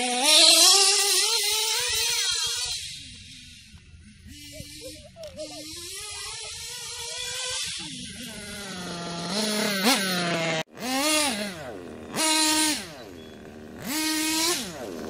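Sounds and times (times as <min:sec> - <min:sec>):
nitro engine revving: 0:00.0 - 0:15.0.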